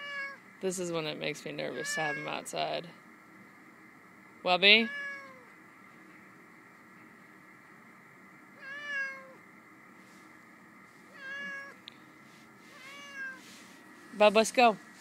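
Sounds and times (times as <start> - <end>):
cat meowing: 0.0 - 0.4, 1.7 - 2.4, 4.9 - 5.5, 8.6 - 9.4, 11.1 - 11.8, 12.7 - 13.4.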